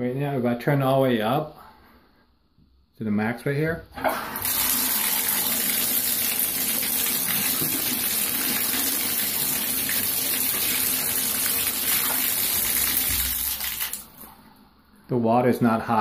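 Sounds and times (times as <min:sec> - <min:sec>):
water running from tap: 0:04.4 - 0:14.3.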